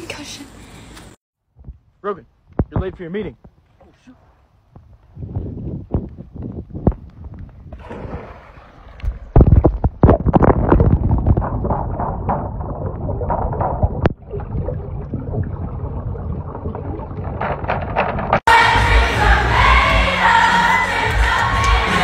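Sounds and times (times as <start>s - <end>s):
person plunging into pool: 7.6s - 18.5s
underwater gurgling and bubbling: 7.8s - 18.4s.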